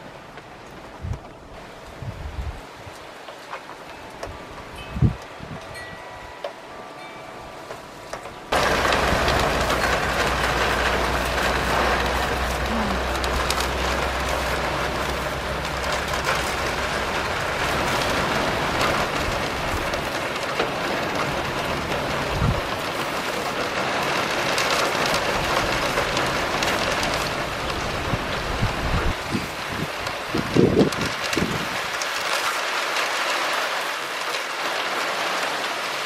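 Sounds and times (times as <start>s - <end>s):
steady rain falling: 0.0s - 36.0s
low steady rumble: 7.9s - 20.2s.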